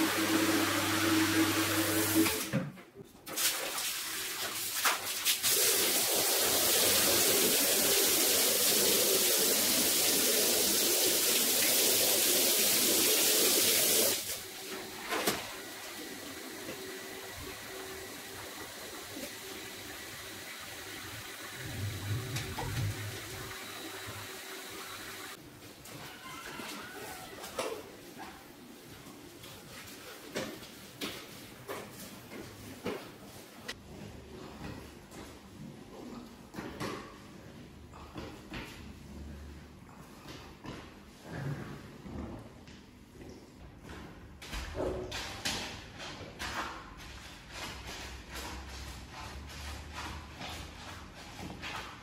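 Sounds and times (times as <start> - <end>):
machine hum: 14.4 - 25.4.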